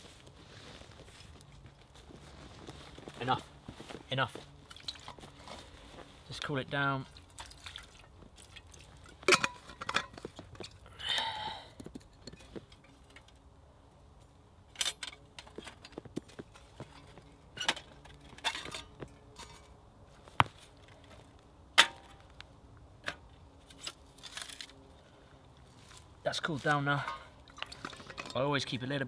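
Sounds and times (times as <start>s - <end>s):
metal clinks and knocks: 9.0s - 10.9s.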